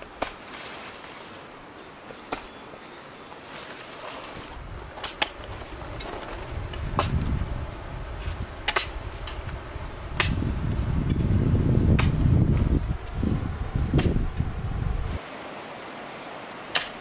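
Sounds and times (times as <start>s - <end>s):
wind rumble on microphone: 4.4s - 15.2s
digging tool strikes: 8.6s - 9.6s, 10.2s - 10.5s, 11.9s - 12.3s, 13.9s - 14.2s, 16.7s - 17.0s.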